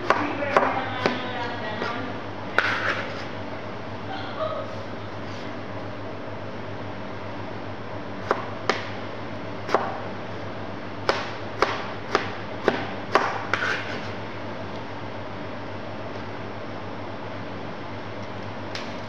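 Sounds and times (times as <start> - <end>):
knife chopping on plastic board: 0.0 - 1.2, 2.6 - 3.2, 8.2 - 9.0, 9.7 - 10.0, 11.0 - 14.0
steady low hum: 0.0 - 19.0.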